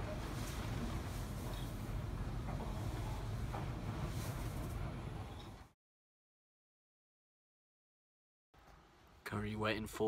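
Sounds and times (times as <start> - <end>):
washing machines rumbling: 0.0 - 5.8.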